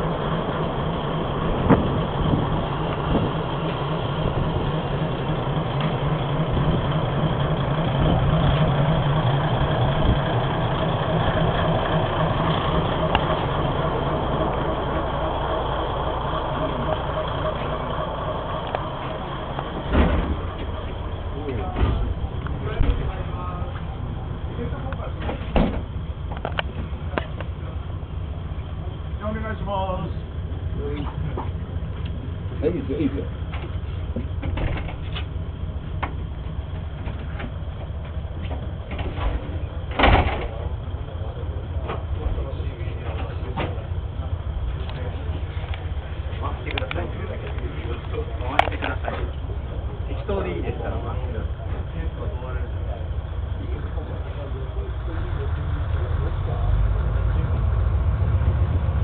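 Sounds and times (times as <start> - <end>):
diesel engine idling: 0.0 - 59.0
short low thump: 1.5 - 2.5, 19.6 - 20.8, 25.2 - 26.0.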